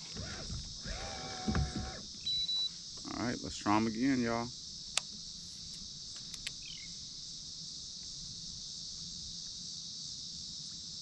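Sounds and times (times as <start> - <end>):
insects droning: 0.0 - 11.0
faint ticks: 4.9 - 6.6
bird chirp: 6.5 - 7.0.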